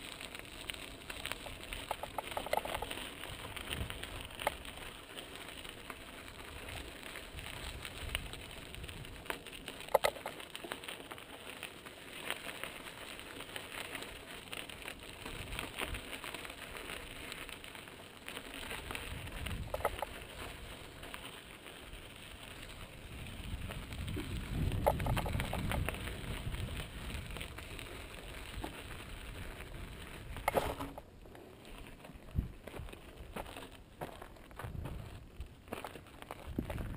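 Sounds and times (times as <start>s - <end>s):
bike tyres crunching on gravel: 0.0s - 36.9s
clicks and rattles: 1.8s - 2.9s, 9.8s - 10.4s, 24.8s - 25.9s.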